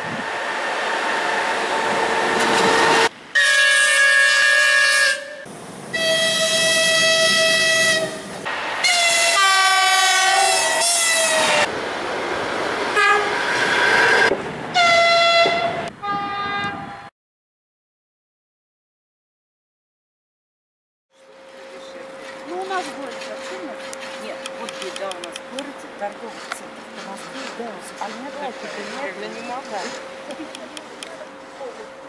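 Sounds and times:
rush of passing trains: 0.0s - 17.1s, 21.2s - 32.0s
locomotive horn blasts: 2.6s - 11.7s, 13.0s - 13.4s, 14.7s - 17.1s.

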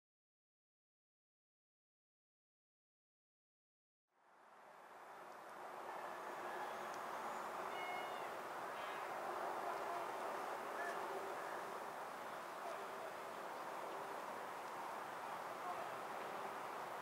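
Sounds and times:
faint outdoor background noise: 4.1s - 17.0s.

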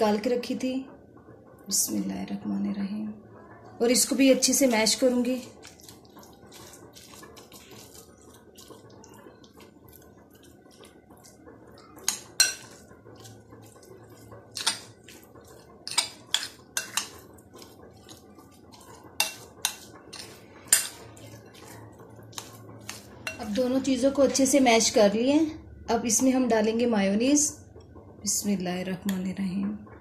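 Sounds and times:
spoon clinking against glass bowl: 12.0s - 12.8s.

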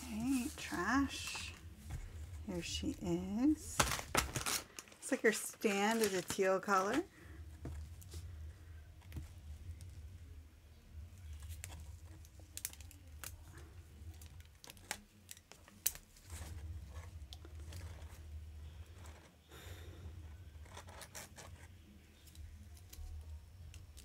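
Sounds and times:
plastic and cardboard rustling: 0.0s - 8.3s, 11.2s - 19.4s
low steady hum: 0.0s - 24.0s.

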